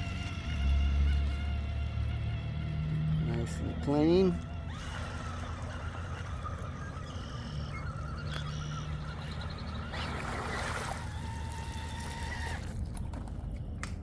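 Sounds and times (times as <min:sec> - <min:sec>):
electric motor whining: 0:00.0 - 0:13.3
water splashing: 0:04.6 - 0:13.0.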